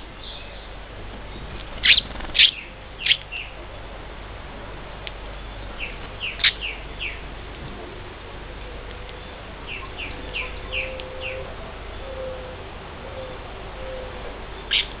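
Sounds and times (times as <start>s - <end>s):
finches chirping: 0.1s - 3.6s, 5.3s - 7.4s, 8.6s - 12.6s, 13.8s - 15.0s.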